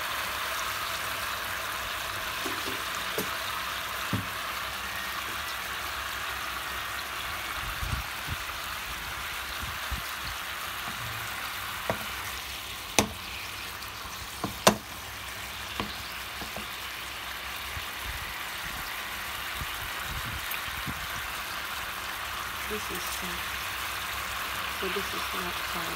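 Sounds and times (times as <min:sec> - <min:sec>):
meat sizzling in a pan: 0:00.0 - 0:25.9
sharp pops: 0:13.0 - 0:13.3, 0:14.4 - 0:15.0.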